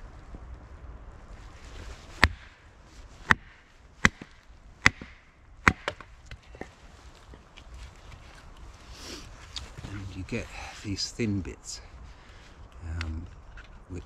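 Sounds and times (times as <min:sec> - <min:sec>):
hatchet chopping wood: 0:02.2 - 0:02.6, 0:03.2 - 0:06.4.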